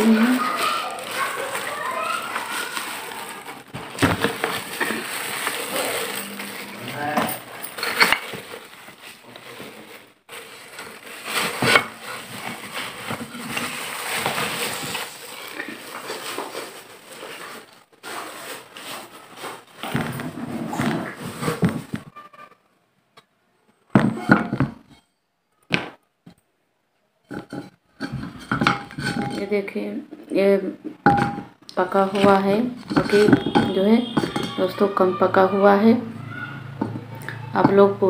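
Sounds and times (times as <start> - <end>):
plastic bag rustling: 0.0 - 22.2, 31.0 - 35.4.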